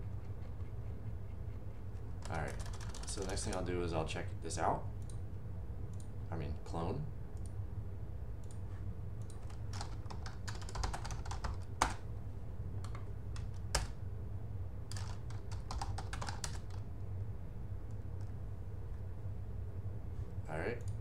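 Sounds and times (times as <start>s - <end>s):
keyboard typing: 0.0s - 3.7s, 9.2s - 12.0s, 14.9s - 16.8s
steady low hum: 0.0s - 21.0s.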